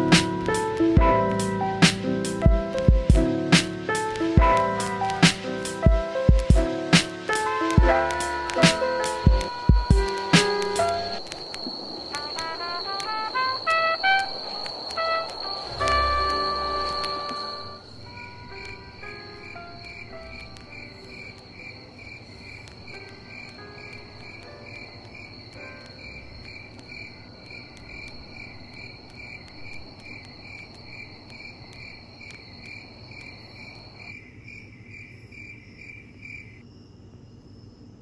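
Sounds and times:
music track: 0.0s - 11.4s, 12.0s - 21.7s, 22.3s - 28.2s
crickets chirping: 0.0s - 38.0s.

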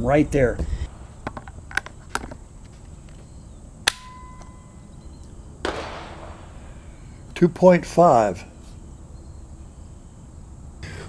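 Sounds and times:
rifle shot: 3.8s - 4.2s, 5.6s - 7.1s.

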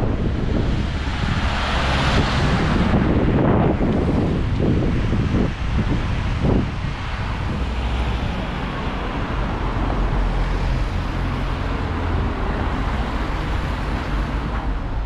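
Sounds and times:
bus diesel engine running: 0.0s - 15.0s
road and tyre noise: 0.0s - 15.0s.

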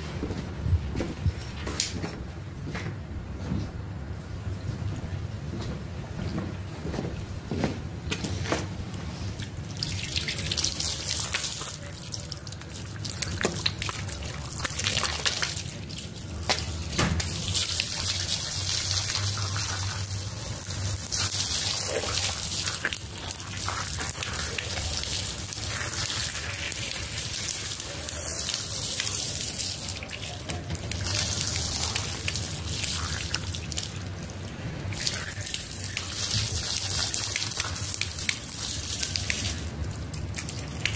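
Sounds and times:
water jet spraying onto rug: 16.4s - 33.9s.

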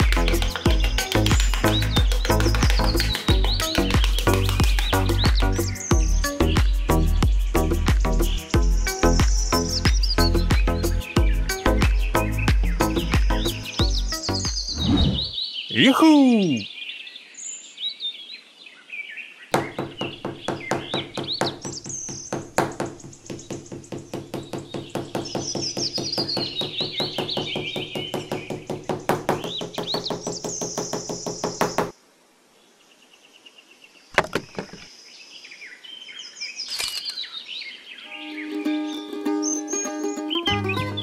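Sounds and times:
birds chirping: 0.0s - 31.9s, 33.4s - 41.0s
rapid even knocking: 19.6s - 31.8s.

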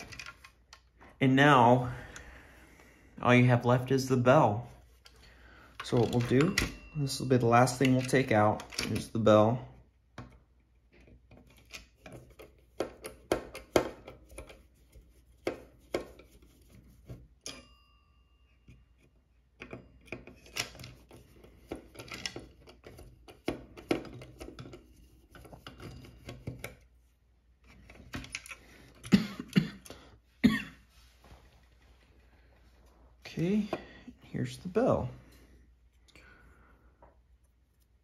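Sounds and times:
metallic bell ring: 6.2s - 7.8s, 17.4s - 18.7s.

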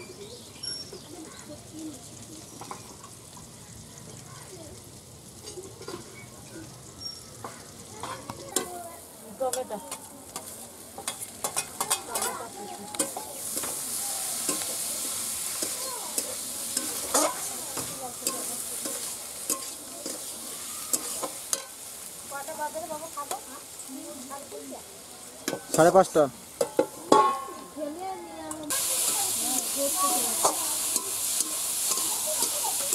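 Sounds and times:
food sizzling in wok: 0.0s - 32.9s
metal spatula clinking and scraping: 5.4s - 8.7s, 9.5s - 21.8s, 28.5s - 32.9s.

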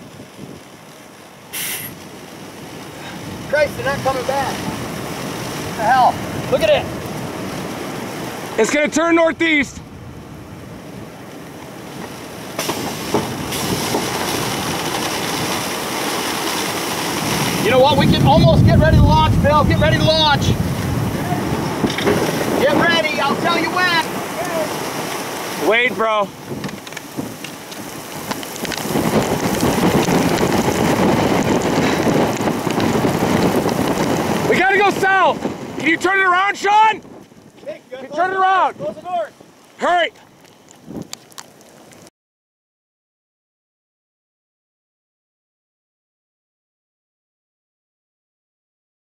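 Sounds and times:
rain: 0.0s - 42.1s
rushing wind: 0.0s - 42.1s.

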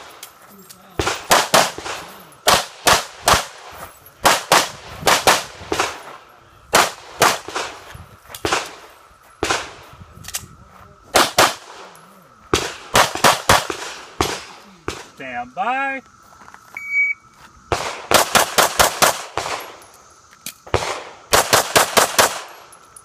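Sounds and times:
pistol shots: 1.0s - 7.8s, 11.1s - 11.9s, 12.5s - 15.1s, 17.7s - 19.8s, 20.7s - 22.6s.

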